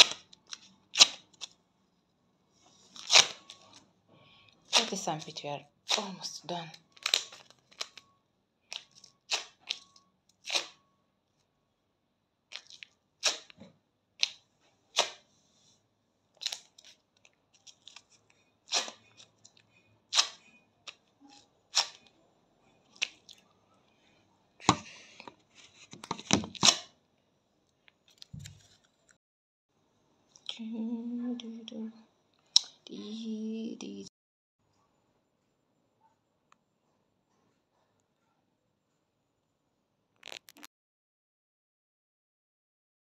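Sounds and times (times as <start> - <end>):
wax strips ripping and crackling: 0.0 - 1.6, 2.9 - 3.8, 6.9 - 8.0, 16.4 - 19.5, 40.2 - 40.7.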